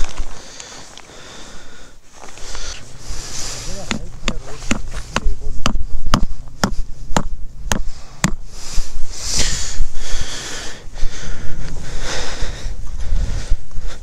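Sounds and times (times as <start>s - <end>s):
rustling hiss: 0.0s - 14.0s
low rumble: 2.7s - 13.7s
hammer knocking tent pegs: 3.8s - 8.4s.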